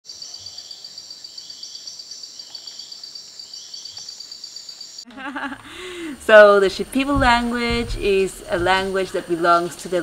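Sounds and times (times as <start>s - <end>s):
soft insect chirps: 0.1s - 5.5s
insects trilling: 0.1s - 10.0s
woman laughing: 5.1s - 6.3s.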